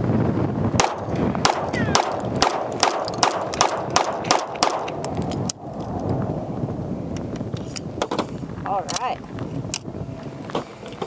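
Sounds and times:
pistol shots: 0:00.8 - 0:05.0.

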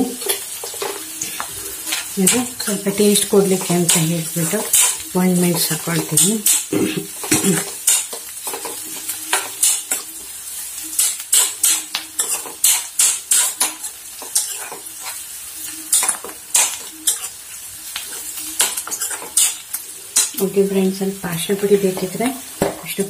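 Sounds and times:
onions frying in oil: 0:00.0 - 0:23.0
spoon scraping a steel pan: 0:03.5 - 0:10.1, 0:11.0 - 0:15.2, 0:15.9 - 0:17.4, 0:18.0 - 0:20.4.

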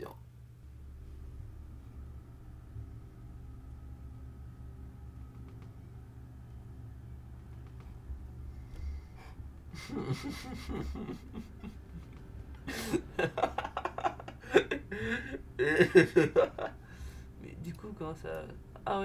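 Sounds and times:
man laughing muffled: 0:09.7 - 0:16.8.

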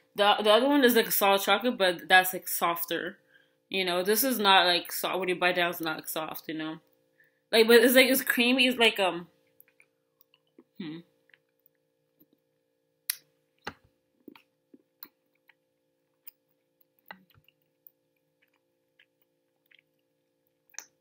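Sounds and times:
faint steady hum: 0:00.0 - 0:21.0
mouth clicks chewing chocolate: 0:14.2 - 0:21.0.

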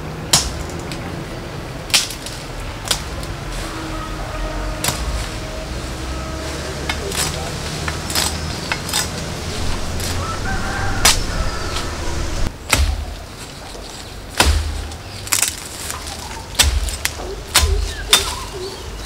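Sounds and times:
birds chirping: 0:05.1 - 0:19.0
knife chopping tree branch: 0:06.9 - 0:11.9, 0:12.6 - 0:13.6, 0:14.3 - 0:18.5.

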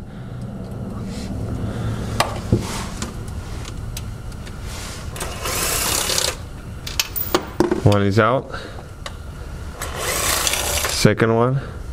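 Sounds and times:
cordless impact tool running: 0:05.2 - 0:06.4, 0:09.8 - 0:11.0.

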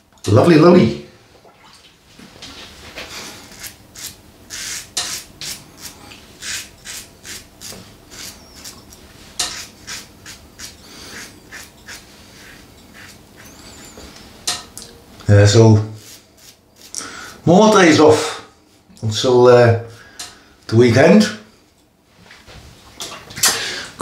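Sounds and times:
razor scraping stubble: 0:03.2 - 0:14.3, 0:15.9 - 0:17.4.

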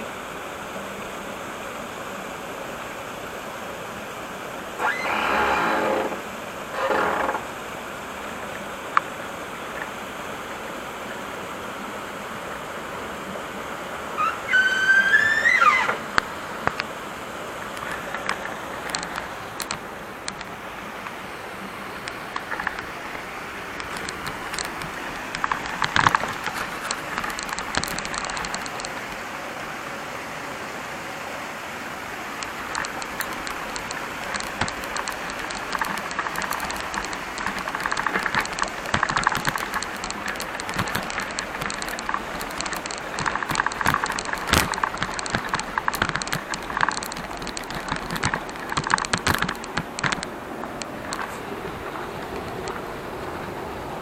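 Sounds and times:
wheels crunching over gravel: 0:22.0 - 0:29.2, 0:32.4 - 0:54.0.

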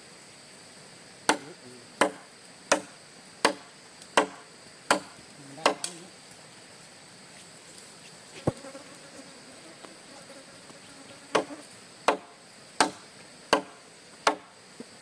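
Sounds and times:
high insect drone: 0:00.0 - 0:15.0
sharp chopping strikes: 0:01.3 - 0:06.0, 0:11.3 - 0:14.5.

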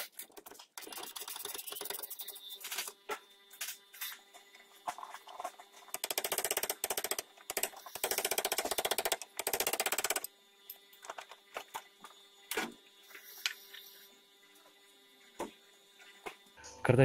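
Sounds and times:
ratchet wrench clicking: 0:06.0 - 0:10.3.

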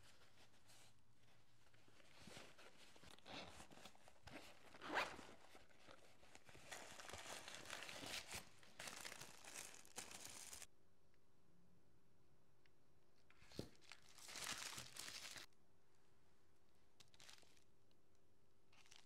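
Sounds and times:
tissue paper rustling: 0:00.0 - 0:10.7, 0:13.5 - 0:15.5
zipper pulled open: 0:03.0 - 0:05.6.

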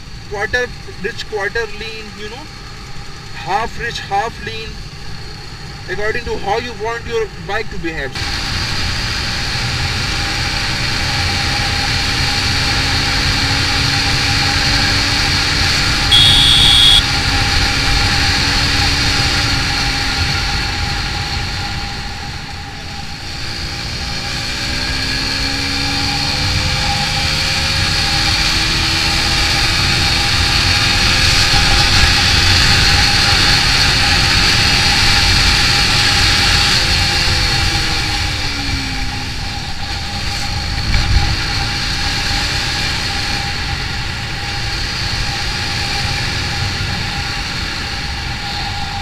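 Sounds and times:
motorcycle engine running: 0:15.7 - 0:18.0
horn beeping: 0:16.1 - 0:17.2.

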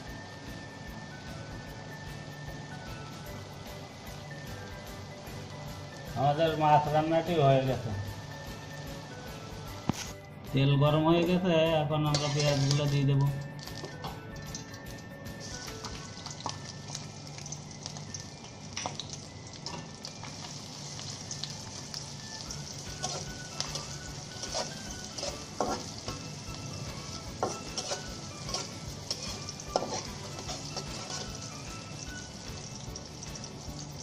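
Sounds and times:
onions sizzling in hot oil: 0:00.0 - 0:09.9, 0:12.0 - 0:34.0
spatula scraping a metal pot: 0:12.1 - 0:12.8, 0:22.9 - 0:26.3, 0:27.3 - 0:31.5.

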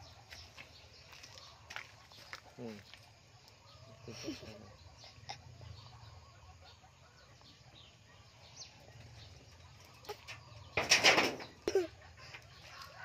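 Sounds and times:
wicker tray rustling and rattling: 0:09.0 - 0:11.6.

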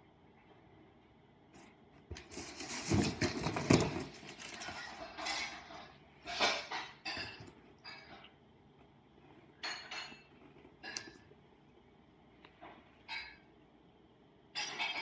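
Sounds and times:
kittens scuffling: 0:01.5 - 0:08.2
paper rustling: 0:02.1 - 0:05.4.

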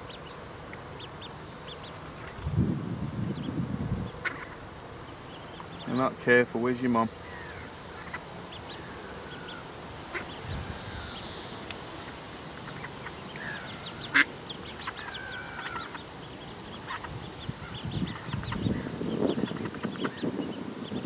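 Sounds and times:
duckling peeping: 0:00.0 - 0:02.6, 0:03.2 - 0:06.2, 0:06.8 - 0:21.0.

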